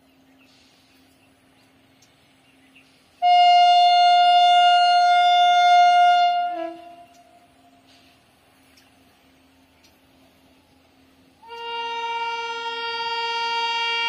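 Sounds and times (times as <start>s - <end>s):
locomotive horn blast: 3.2s - 8.0s, 11.4s - 14.0s.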